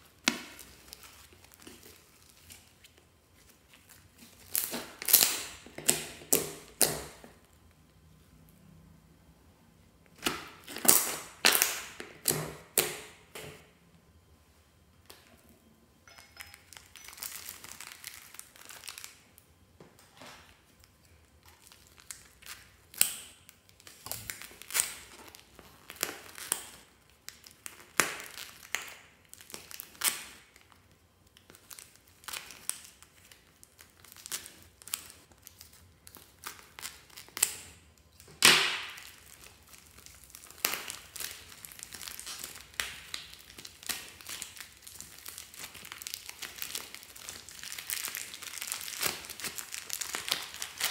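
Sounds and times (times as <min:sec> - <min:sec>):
plastic wrappers crinkling: 0:00.0 - 0:07.6, 0:16.1 - 0:19.4, 0:20.0 - 0:50.9.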